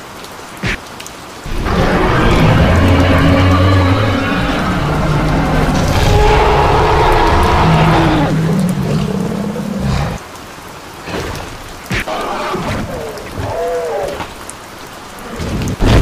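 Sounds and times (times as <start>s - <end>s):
rain hiss: 0.0s - 16.0s
rolling thunder rumble: 1.5s - 9.6s.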